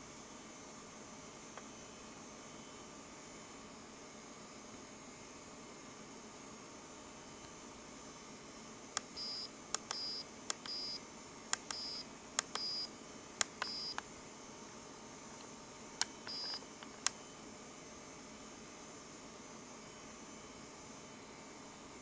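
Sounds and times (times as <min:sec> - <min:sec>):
short high-pitched beeps: 0:09.2 - 0:11.0, 0:11.7 - 0:12.9, 0:13.6 - 0:14.0, 0:16.2 - 0:16.7
push-buttons clicking: 0:09.8 - 0:10.8, 0:11.5 - 0:12.8, 0:13.4 - 0:14.0, 0:16.0 - 0:17.2.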